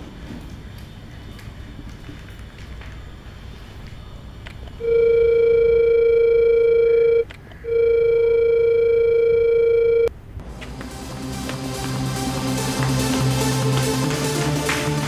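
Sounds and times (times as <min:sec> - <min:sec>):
telephone line beeps: 0:04.8 - 0:10.1.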